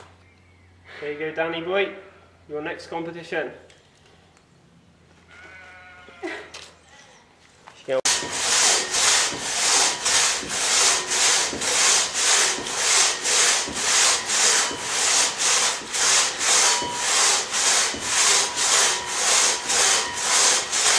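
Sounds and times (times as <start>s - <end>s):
crosscut saw cutting a log: 8.1s - 20.9s.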